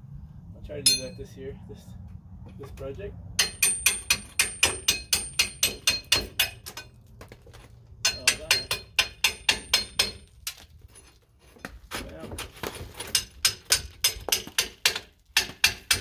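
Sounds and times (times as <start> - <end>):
rapid ringing hammer blows: 0.9 - 1.2.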